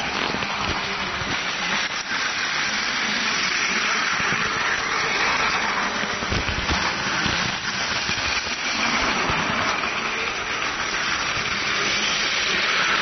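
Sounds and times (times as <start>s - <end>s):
toy train motor whirring: 0.0s - 13.0s
wheels clattering over track: 0.0s - 13.0s.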